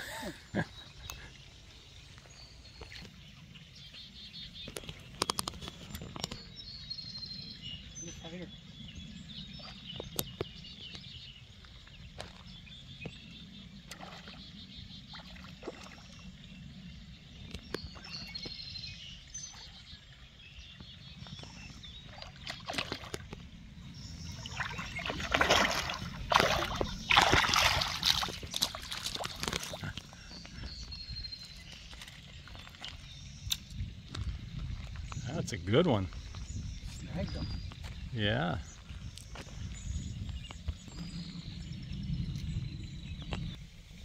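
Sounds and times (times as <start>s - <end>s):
faint birds chirping: 0.0s - 44.0s
fish splashing in water: 22.0s - 23.5s, 24.3s - 30.0s.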